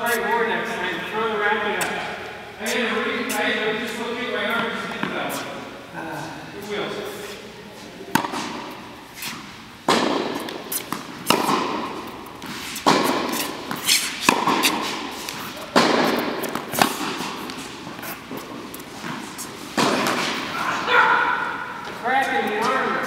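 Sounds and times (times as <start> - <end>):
tennis balls struck by rackets: 4.5 - 5.6, 8.1 - 22.9.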